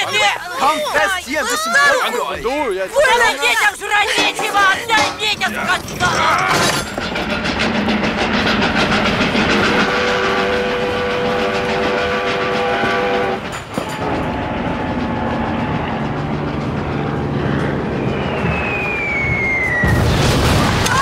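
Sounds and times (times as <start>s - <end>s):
steam train clatter: 2.6s - 20.0s
locomotive whistle chord: 9.5s - 16.2s, 17.0s - 20.1s.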